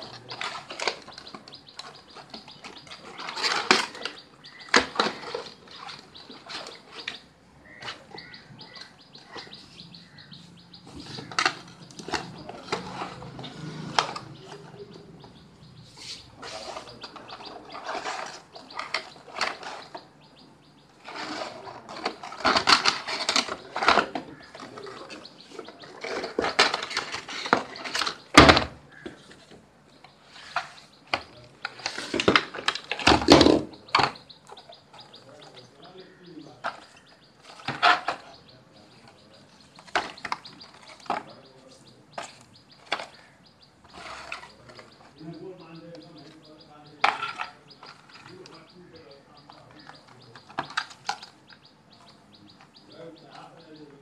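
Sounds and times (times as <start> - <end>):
cardboard and plastic rustling: 0.0 - 10.2, 15.8 - 20.1, 21.0 - 29.6, 30.2 - 34.2, 34.9 - 46.4.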